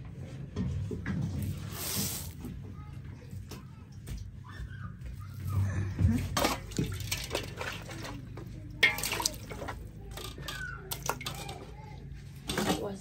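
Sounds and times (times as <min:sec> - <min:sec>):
water splashing in a metal pot: 0:06.0 - 0:13.0.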